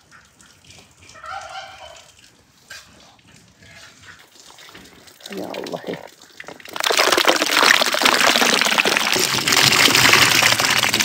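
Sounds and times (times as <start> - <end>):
fruit splashing in water: 5.2 - 11.0.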